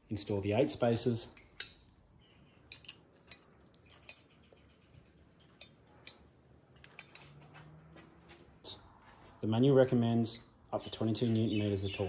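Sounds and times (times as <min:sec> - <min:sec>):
clicks of small metal spacers: 0:01.3 - 0:02.0, 0:02.6 - 0:04.3, 0:05.4 - 0:07.4.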